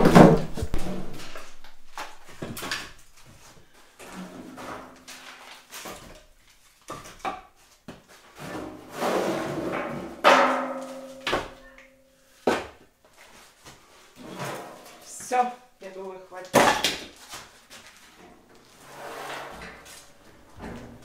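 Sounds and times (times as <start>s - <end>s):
firewood knocking and clattering: 0.0s - 5.2s, 9.7s - 11.8s.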